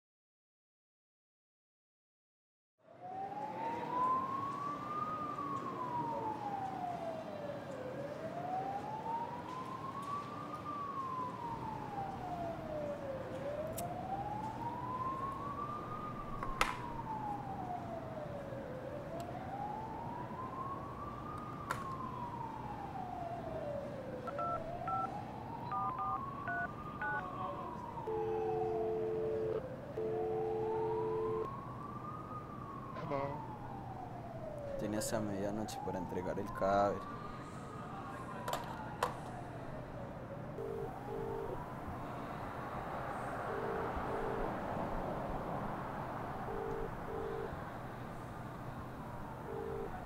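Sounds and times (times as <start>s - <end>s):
siren wailing: 2.9s - 50.0s
telephone keypad tones: 24.3s - 25.1s, 25.7s - 27.2s, 28.1s - 31.5s, 46.5s - 47.5s.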